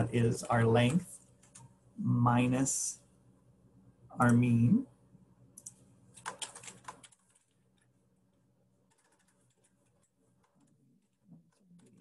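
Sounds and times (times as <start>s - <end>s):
faint computer keyboard typing: 0.4s - 1.8s, 5.5s - 8.0s, 8.8s - 12.0s.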